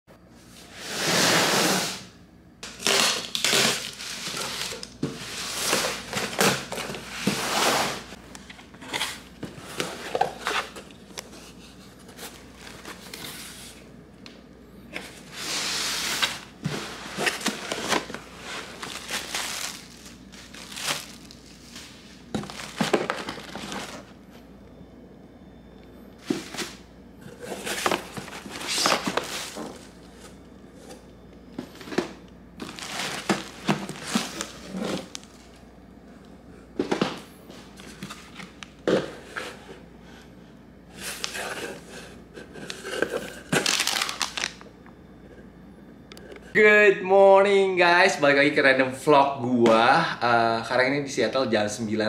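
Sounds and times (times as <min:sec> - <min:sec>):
plastic packing crinkling: 0:02.6 - 0:07.4, 0:16.0 - 0:24.1, 0:27.4 - 0:30.0, 0:32.6 - 0:35.5, 0:42.6 - 0:44.7.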